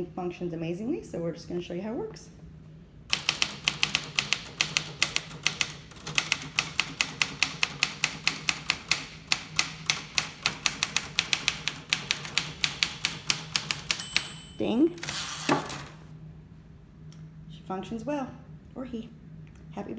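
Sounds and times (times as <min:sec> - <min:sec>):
manual typewriter clacking: 0:03.1 - 0:14.4.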